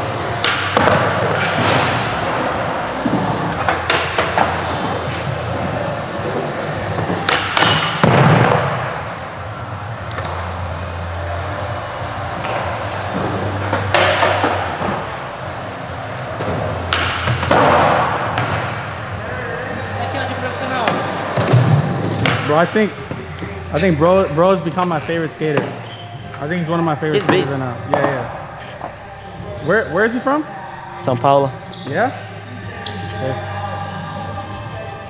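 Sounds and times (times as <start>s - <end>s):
skateboard wheels rolling on concrete: 0.0s - 23.4s.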